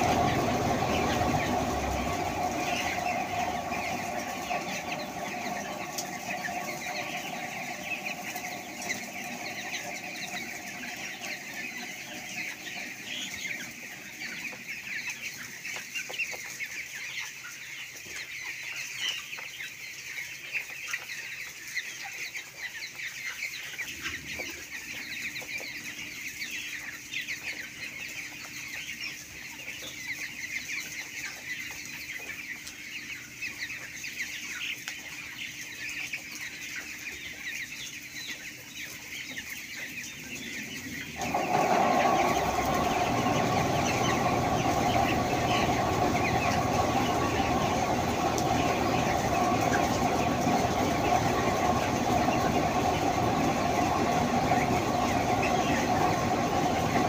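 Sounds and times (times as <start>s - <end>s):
steady low hum: 0.0s - 16.0s, 39.0s - 57.0s
chickens chirping and clucking: 0.0s - 57.0s.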